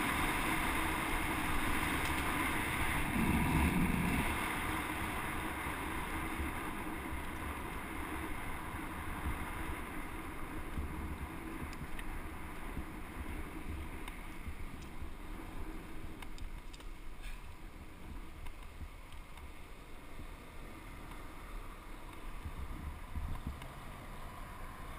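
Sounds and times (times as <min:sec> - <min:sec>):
bicycle tyre rumble: 0:00.0 - 0:24.9
wind on microphone: 0:02.7 - 0:05.1, 0:22.4 - 0:23.7.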